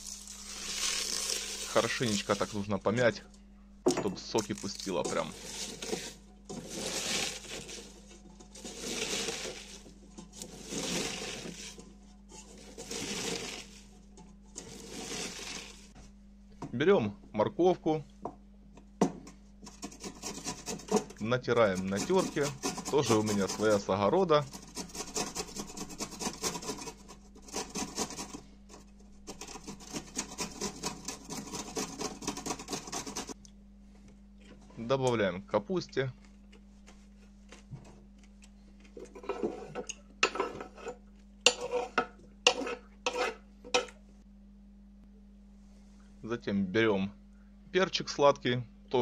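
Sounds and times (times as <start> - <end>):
cabbage crunching in a metal pot: 0.0 - 3.0, 4.2 - 11.8, 12.5 - 13.9, 14.6 - 15.9, 20.3 - 28.4
carrot grating on metal grater: 0.5 - 2.8, 4.4 - 13.9, 14.5 - 15.9, 19.6 - 33.4, 40.4 - 43.9.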